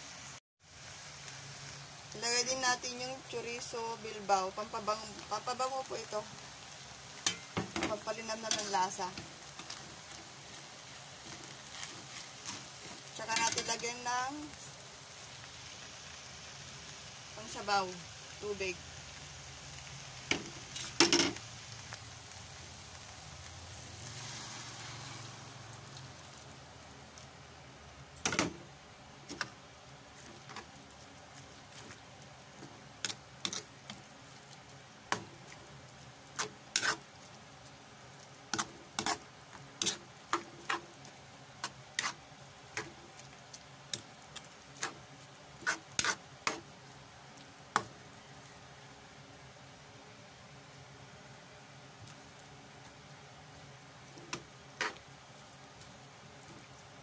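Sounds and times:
soft sizzle: 0.0 - 57.0
spatula scraping a wok: 7.1 - 13.8, 20.3 - 21.4, 24.0 - 25.6, 29.2 - 34.1, 35.1 - 37.4, 38.5 - 46.7, 54.1 - 55.1.

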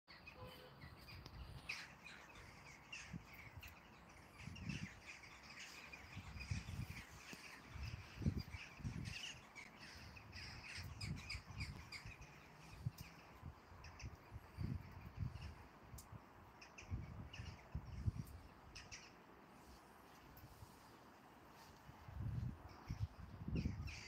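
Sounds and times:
flock of birds calling: 0.1 - 15.6, 22.8 - 24.0.

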